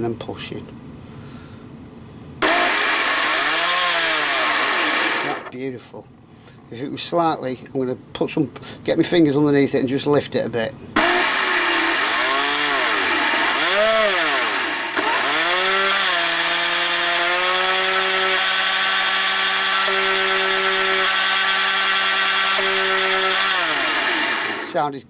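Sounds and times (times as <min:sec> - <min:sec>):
electric motor whining: 0:02.4 - 0:05.5, 0:11.0 - 0:24.8.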